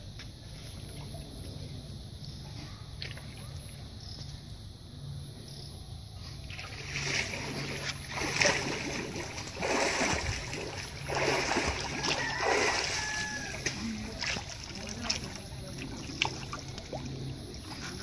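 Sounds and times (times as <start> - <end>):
low steady hum: 0.0 - 18.0
water splashing around a boat: 6.3 - 18.0.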